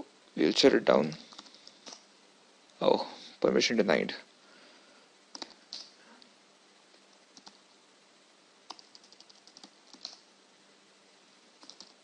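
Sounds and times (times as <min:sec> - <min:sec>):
computer keyboard typing: 0:01.1 - 0:02.0, 0:05.3 - 0:05.9, 0:07.3 - 0:07.6, 0:08.7 - 0:10.2, 0:11.6 - 0:12.0.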